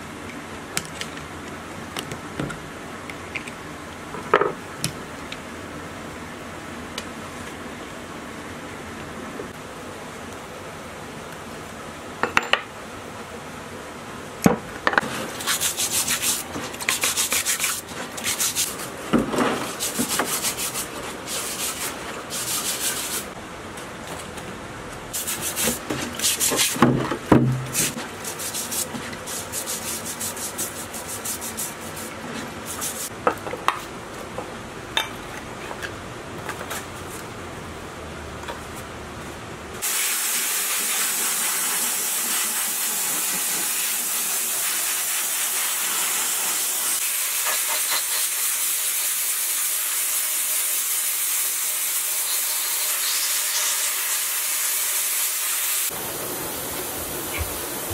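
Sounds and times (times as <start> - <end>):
steady loud hiss: 5.6 - 23.5, 25.1 - 33.2, 39.8 - 57.9
wire brush scrubbing metal parts: 15.0 - 23.4, 25.1 - 33.1.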